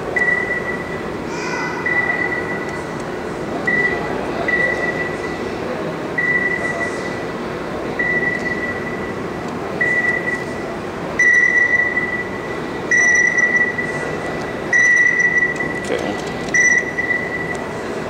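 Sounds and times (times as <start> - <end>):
steady background hum: 0.0 - 18.0
high electronic beeps: 1.8 - 2.8, 11.2 - 14.0, 14.7 - 15.9, 16.6 - 17.6.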